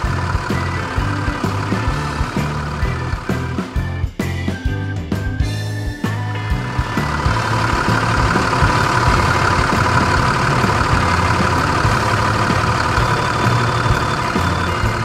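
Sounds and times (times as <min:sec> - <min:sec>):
heavy vehicle engine running: 0:00.0 - 0:03.9, 0:06.3 - 0:15.0.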